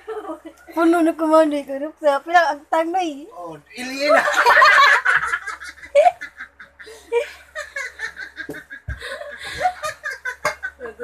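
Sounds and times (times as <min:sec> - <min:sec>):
man and woman laughing: 0:04.0 - 0:11.0.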